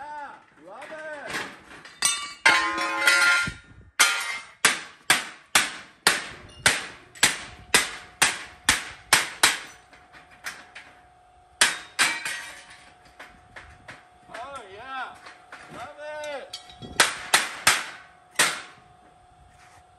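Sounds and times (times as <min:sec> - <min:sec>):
hammer striking steel: 0:02.0 - 0:09.8, 0:11.6 - 0:12.8, 0:16.2 - 0:18.8.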